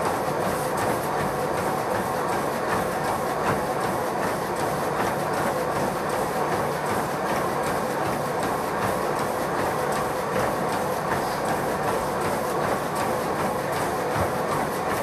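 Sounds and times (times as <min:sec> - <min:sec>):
running footfalls on treadmill: 0:00.0 - 0:15.0
treadmill motor and belt: 0:00.0 - 0:15.0.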